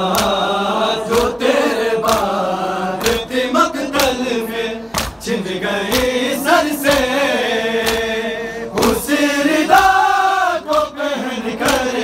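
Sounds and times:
men chanting in unison: 0:00.0 - 0:12.0
hands slapping bare chests: 0:00.1 - 0:00.4, 0:01.1 - 0:01.4, 0:02.0 - 0:02.4, 0:03.0 - 0:03.3, 0:03.9 - 0:04.3, 0:04.9 - 0:05.2, 0:05.9 - 0:06.2, 0:06.8 - 0:07.2, 0:07.8 - 0:08.1, 0:10.6 - 0:11.0, 0:11.6 - 0:12.0.

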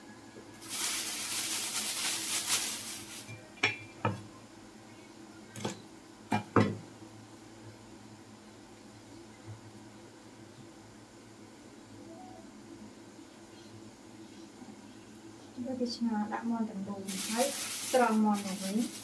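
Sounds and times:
crinkly rustling: 0:00.6 - 0:03.3, 0:17.0 - 0:19.0.

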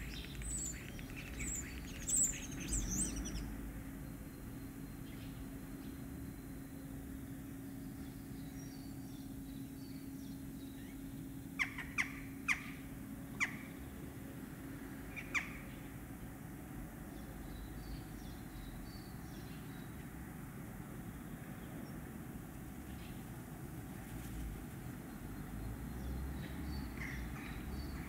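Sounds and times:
starling chirps and twitters: 0:00.0 - 0:03.5.

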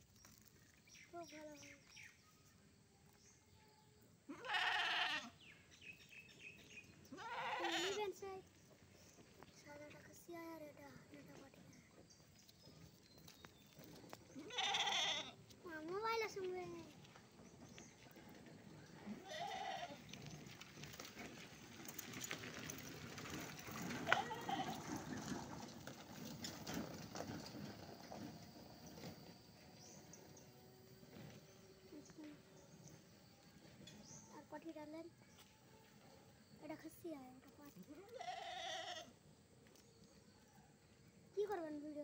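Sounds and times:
goat kid bleating: 0:04.3 - 0:05.4, 0:07.1 - 0:08.2, 0:14.4 - 0:15.4, 0:19.2 - 0:20.0, 0:24.1 - 0:24.8, 0:38.1 - 0:39.1.

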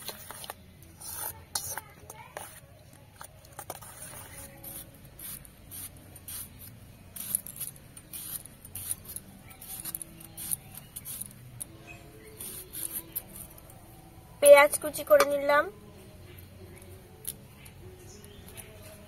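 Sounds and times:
onion being sliced: 0:04.0 - 0:11.4.

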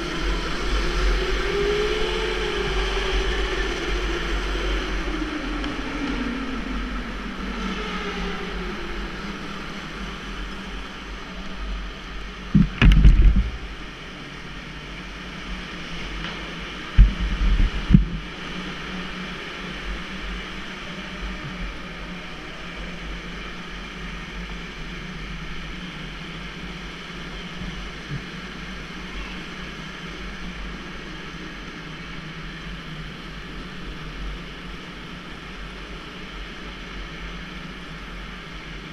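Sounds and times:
tyre and wind noise: 0:11.0 - 0:19.0
loud low thumps: 0:12.5 - 0:13.9, 0:17.0 - 0:18.2.

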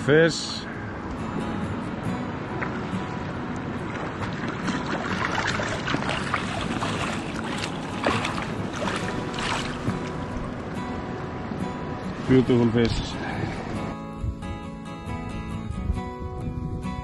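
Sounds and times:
flowing river water: 0:00.0 - 0:14.0
fish splashing at surface: 0:04.2 - 0:10.2.

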